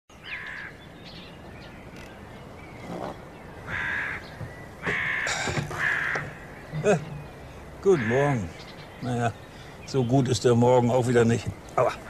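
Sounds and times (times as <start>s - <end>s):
faint bird chirps: 0.1s - 12.0s
crows cawing: 0.2s - 0.8s, 3.6s - 9.8s.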